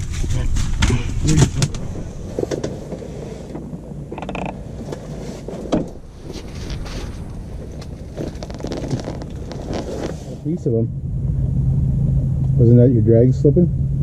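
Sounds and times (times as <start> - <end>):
fishing gear clicks and creaks: 4.1 - 5.0, 6.7 - 10.2.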